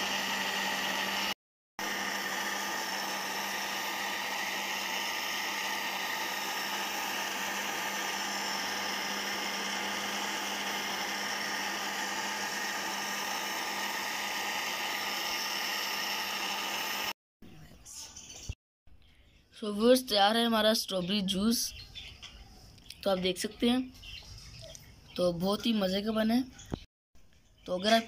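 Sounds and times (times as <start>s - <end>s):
electric blender running: 0.0s - 17.2s.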